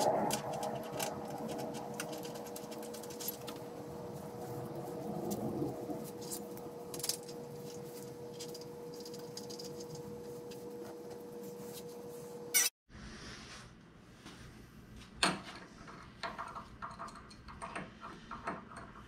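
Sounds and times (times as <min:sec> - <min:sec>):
steady hum: 0:00.0 - 0:12.7.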